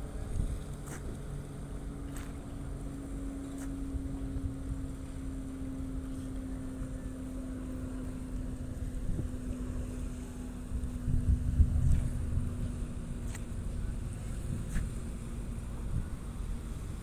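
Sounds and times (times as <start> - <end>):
ship engines rumbling: 0.0 - 17.0
wind buffeting microphone: 8.0 - 17.0.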